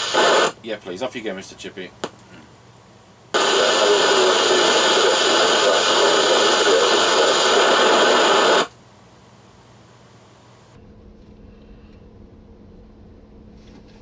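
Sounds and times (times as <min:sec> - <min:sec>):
radio static hiss: 0:00.0 - 0:02.5, 0:03.3 - 0:08.8.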